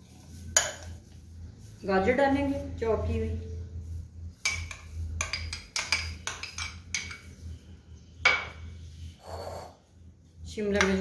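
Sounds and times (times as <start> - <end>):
metal spoon clinking on glass: 4.5 - 7.3.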